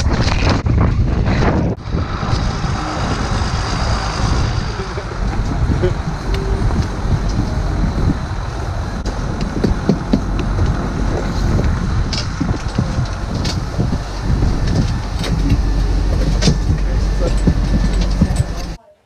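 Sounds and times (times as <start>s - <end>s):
wind buffeting microphone: 0.0s - 18.8s
snowcat engine running: 1.8s - 18.8s
boots knocking on metal steps: 9.1s - 18.8s.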